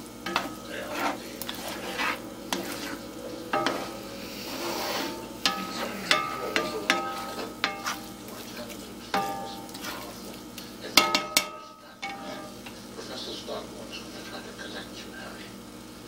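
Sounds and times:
spatula knocking ringing pan: 0.0s - 10.3s, 10.9s - 12.9s
low frying sizzle: 0.0s - 16.0s
spatula scraping eggs in skillet: 0.2s - 14.5s.

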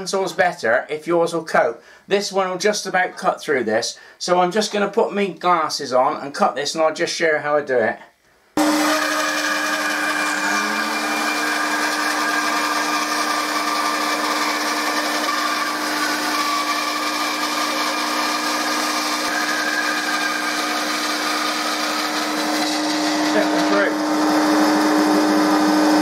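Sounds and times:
bandsaw cutting wood: 8.6s - 26.0s.

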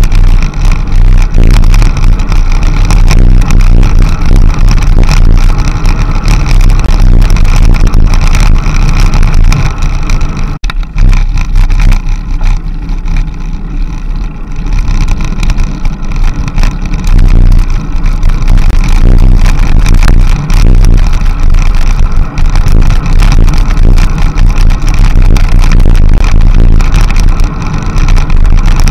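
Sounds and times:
wind buffeting microphone: 0.0s - 28.9s.

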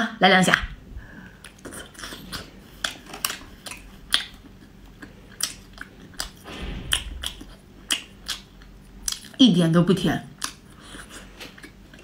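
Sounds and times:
wet chewing and mouth clicks: 1.4s - 6.4s.

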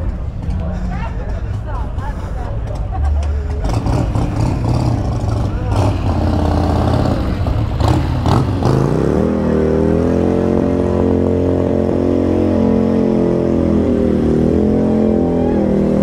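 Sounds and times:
motorcycle engine revving: 3.4s - 16.0s.

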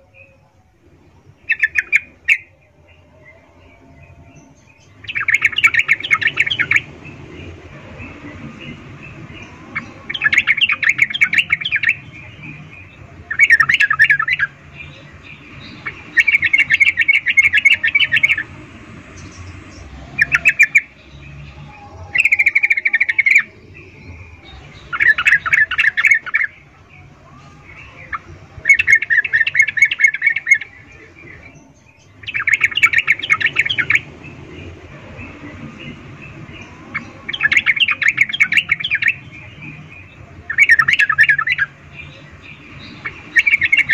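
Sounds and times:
bird chattering calls: 1.4s - 2.6s, 4.4s - 18.5s, 27.6s - 43.9s.

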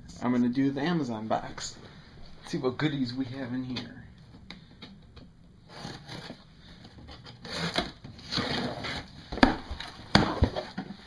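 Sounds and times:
cardboard scraping and rustling: 5.7s - 11.0s.

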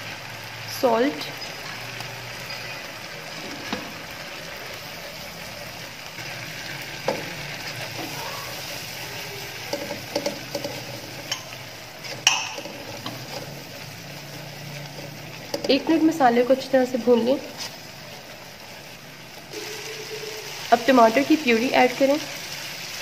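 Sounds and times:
spices frying in oil: 0.0s - 23.0s
wooden spoon scraping a pan: 6.2s - 18.2s.

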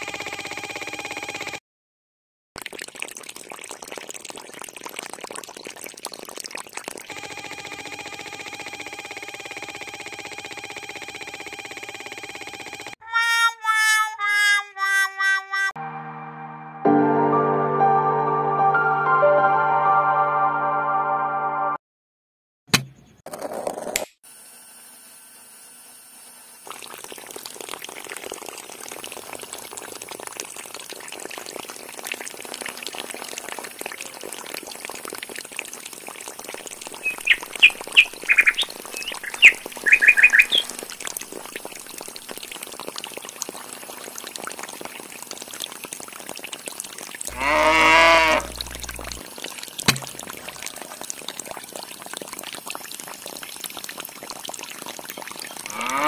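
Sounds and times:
water pouring from pipe: 2.6s - 12.0s, 26.6s - 56.0s
bird chirps: 37.0s - 40.8s
long animal call: 47.3s - 49.2s, 55.7s - 56.0s.

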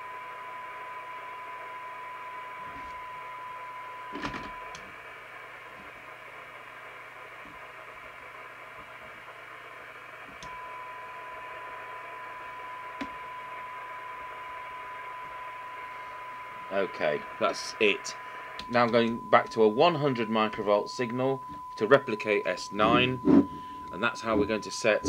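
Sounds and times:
steady test tone: 10.5s - 25.0s
radio speaker hissing: 15.9s - 25.0s.

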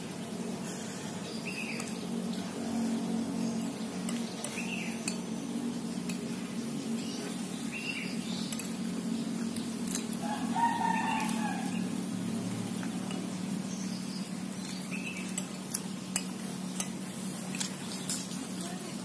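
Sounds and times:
steady low hum: 0.0s - 19.0s
spoons clinking on plates: 14.6s - 18.4s.

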